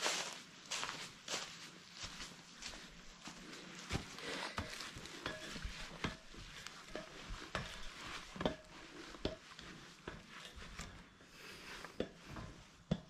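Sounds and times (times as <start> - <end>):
feet and hands on metal rungs: 3.3 - 13.0.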